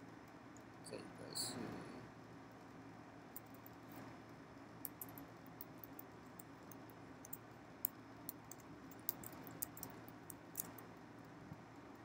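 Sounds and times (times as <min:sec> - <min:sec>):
faint keyboard typing: 0:04.9 - 0:10.9.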